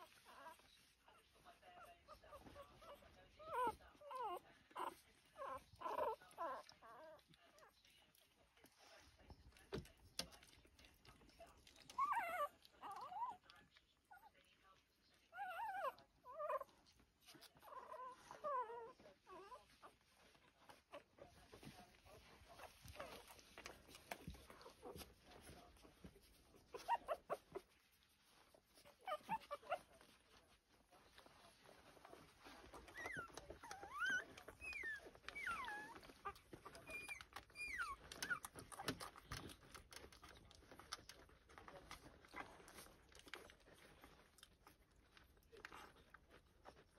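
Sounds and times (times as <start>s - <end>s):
puppies whimpering: 0.0s - 9.3s, 10.7s - 46.9s
faint rustling: 0.0s - 46.9s
puppies squealing: 32.5s - 39.2s.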